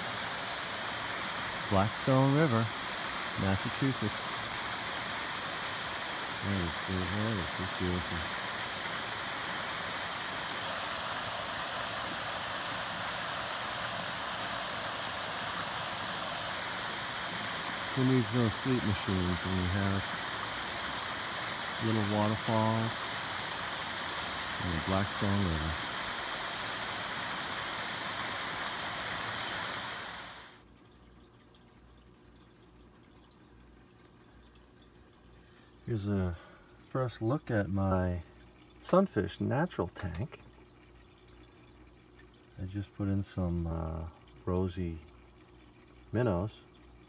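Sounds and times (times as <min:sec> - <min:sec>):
water rushing over a weir: 0:00.0 - 0:30.7.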